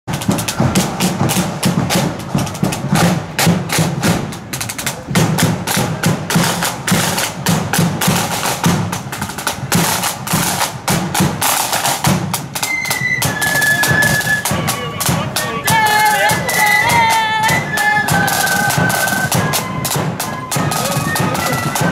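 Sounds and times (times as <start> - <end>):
steady bass drum beat: 0.1 - 12.6, 14.4 - 21.9
snare drums rattling rolls: 0.1 - 21.9
high held flute note: 12.6 - 21.9.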